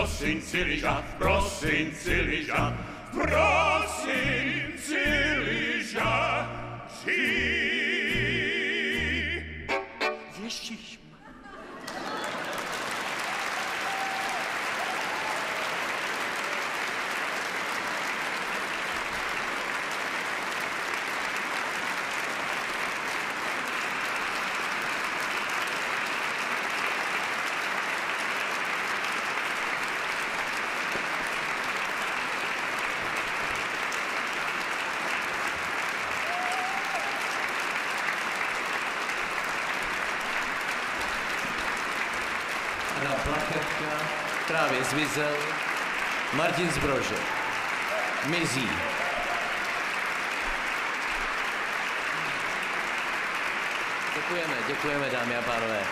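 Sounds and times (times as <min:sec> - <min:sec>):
concert audience applauding: 0:11.4 - 0:55.9.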